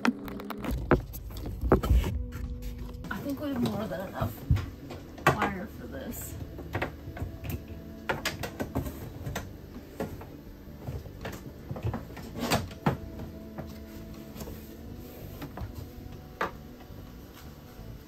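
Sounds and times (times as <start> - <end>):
cable knocking and rustling: 0.0 - 5.8.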